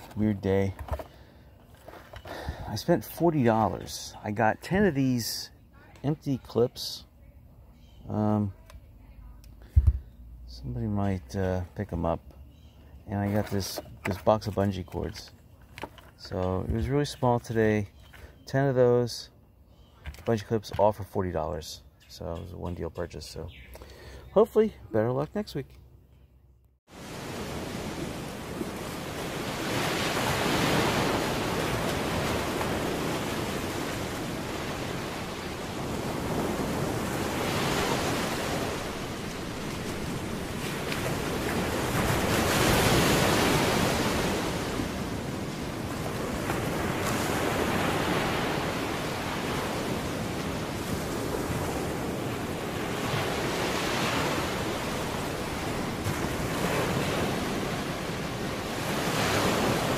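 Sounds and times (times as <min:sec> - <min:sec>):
ocean waves rushing and washing back: 0:00.0 - 0:00.9, 0:26.9 - 0:59.9.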